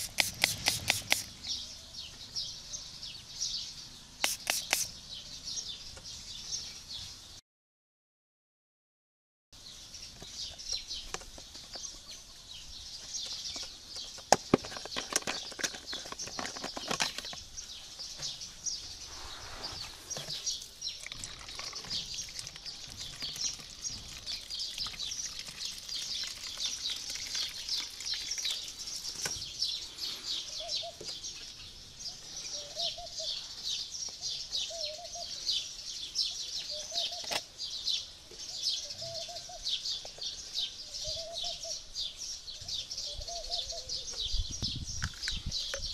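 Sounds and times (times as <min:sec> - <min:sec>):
plastic bottle crackling: 0:00.0 - 0:01.4, 0:13.6 - 0:17.4, 0:20.1 - 0:29.4
small birds chirping: 0:00.0 - 0:07.4, 0:09.6 - 0:45.9.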